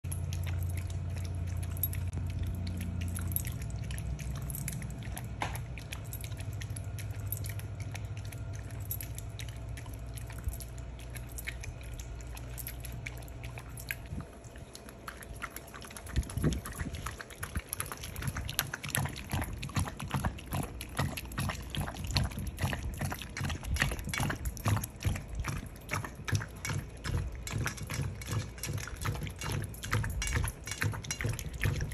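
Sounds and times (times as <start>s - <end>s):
dogs lapping from a metal bowl: 0.0s - 31.9s
low steady hum: 0.0s - 31.9s.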